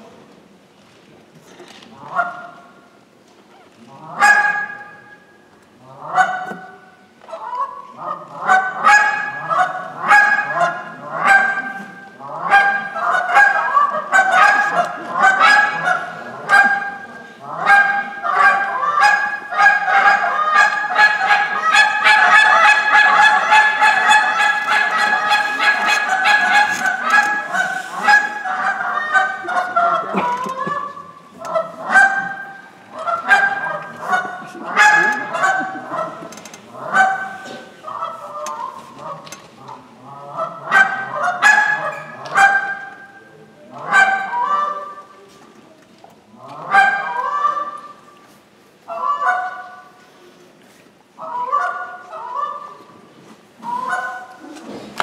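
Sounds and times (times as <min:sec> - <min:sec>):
goose call honks and clucks: 0:01.9 - 0:02.6, 0:03.5 - 0:05.1, 0:05.8 - 0:45.2, 0:46.4 - 0:48.1, 0:48.8 - 0:50.0, 0:51.2 - 0:53.0, 0:53.6 - 0:54.8.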